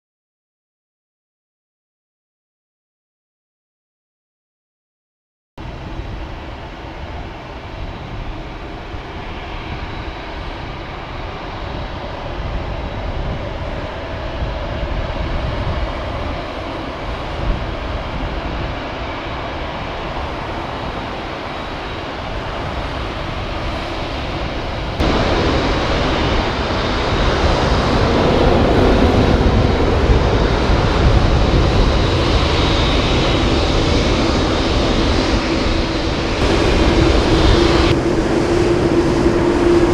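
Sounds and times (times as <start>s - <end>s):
jet engines running: 5.6s - 39.9s.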